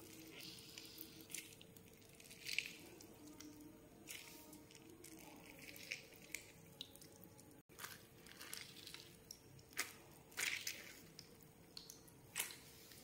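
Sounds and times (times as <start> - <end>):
juice dripping into bowl: 0.0 - 13.0.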